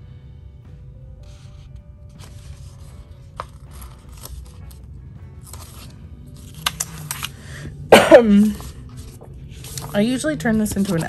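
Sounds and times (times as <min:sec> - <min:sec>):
paper pages rustling: 0:01.2 - 0:04.8, 0:05.4 - 0:07.5, 0:08.4 - 0:11.0
sticker being peeled: 0:06.4 - 0:07.4.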